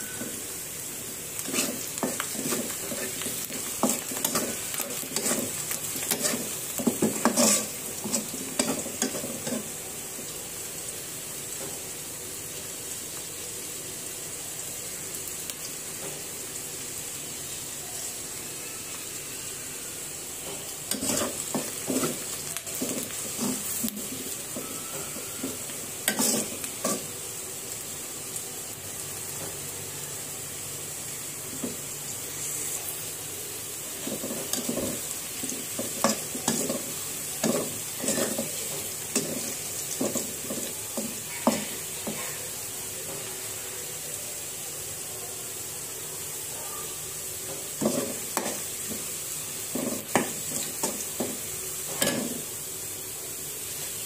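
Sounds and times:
onions sizzling in hot oil: 0:00.0 - 0:54.0
metal spatula scraping a pan: 0:01.4 - 0:09.7, 0:20.9 - 0:27.1, 0:34.0 - 0:42.2.

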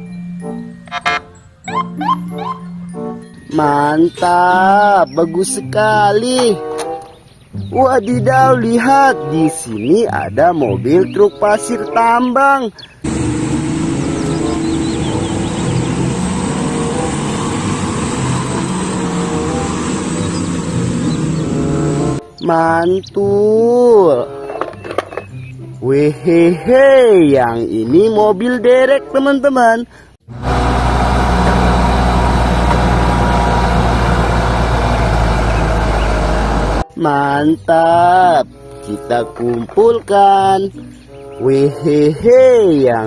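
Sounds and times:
tyres on gravel: 0:10.9 - 0:22.2, 0:24.2 - 0:25.4
large diesel engine under load: 0:13.0 - 0:22.2, 0:30.2 - 0:36.9.

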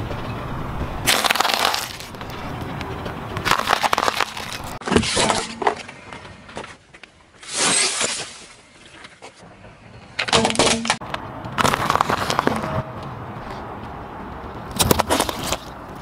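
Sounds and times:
small balls crackling and popping: 0:01.0 - 0:02.4, 0:03.4 - 0:04.8
tyre crunching bagged object: 0:01.1 - 0:02.2, 0:03.4 - 0:05.5, 0:14.8 - 0:15.8.

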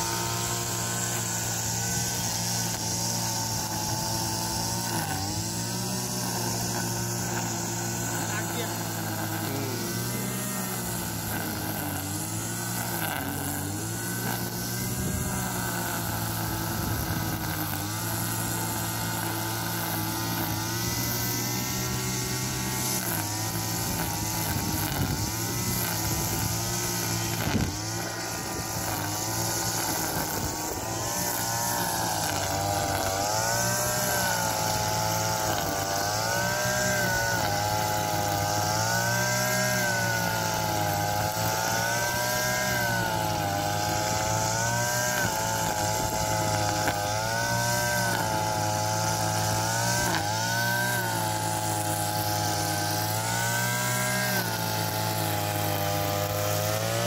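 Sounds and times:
brush cutter cutting grass: 0:00.0 - 0:57.0.

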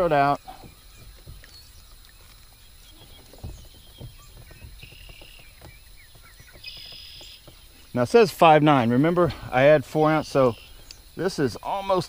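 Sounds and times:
soft handling knocks and taps: 0:00.0 - 0:08.2.

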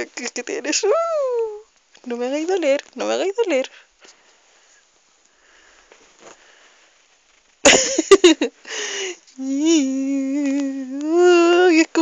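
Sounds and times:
faint rustling: 0:00.0 - 0:12.0
breathy exhale: 0:08.7 - 0:09.2.

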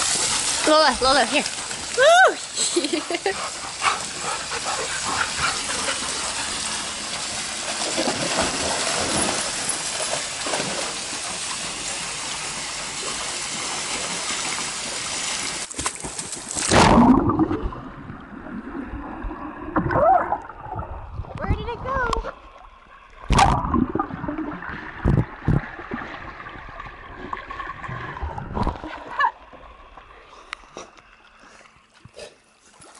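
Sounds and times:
pool water splashing: 0:00.0 - 0:32.9
loud plunge into water: 0:16.6 - 0:17.8.

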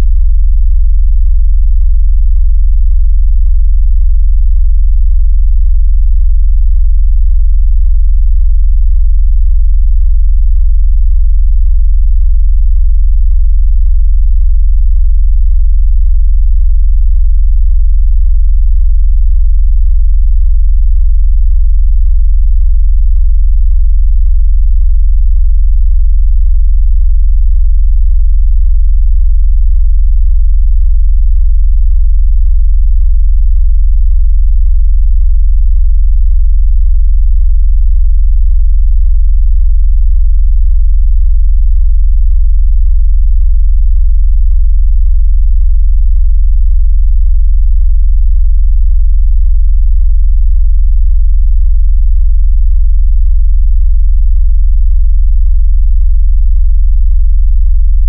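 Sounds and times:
deep synthesized bass tone: 0:00.0 - 0:39.4.

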